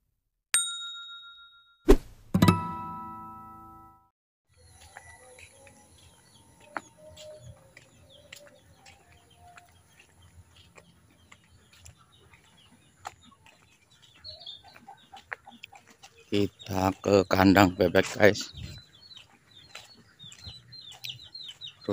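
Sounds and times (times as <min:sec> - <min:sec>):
small birds chirping: 0:04.5 - 0:21.9
chickens clucking: 0:04.8 - 0:21.9.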